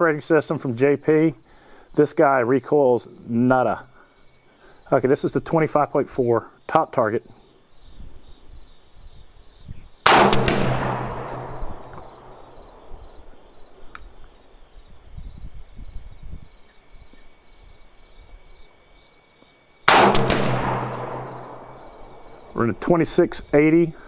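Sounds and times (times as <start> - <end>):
crickets chirping: 0.0 - 24.0
rifle shot with echo: 10.1 - 13.3, 19.9 - 22.8.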